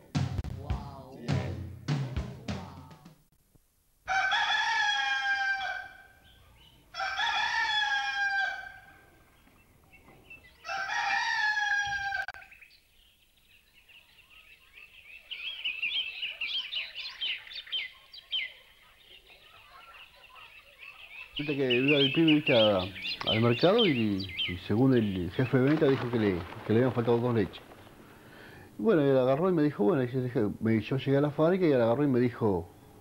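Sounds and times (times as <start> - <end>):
rooster crowing: 4.1 - 6.2, 6.9 - 9.0, 10.6 - 12.5
small birds chirping: 6.1 - 6.9, 8.8 - 10.8, 12.4 - 28.7.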